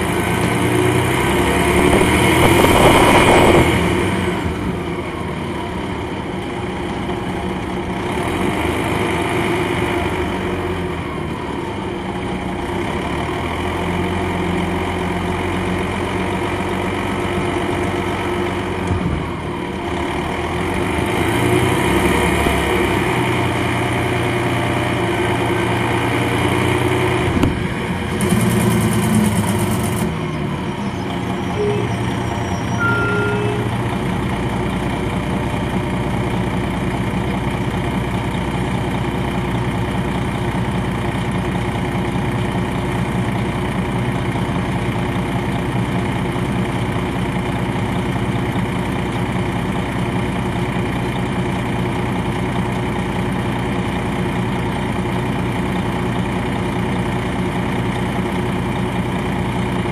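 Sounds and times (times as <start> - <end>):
diesel coach engine: 0.0 - 59.9
loud rushing burst: 1.8 - 4.2.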